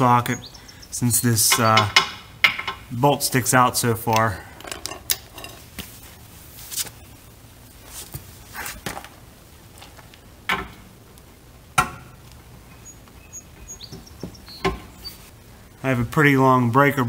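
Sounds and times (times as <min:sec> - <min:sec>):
metal tools clinking and knocking: 0:04.6 - 0:05.7.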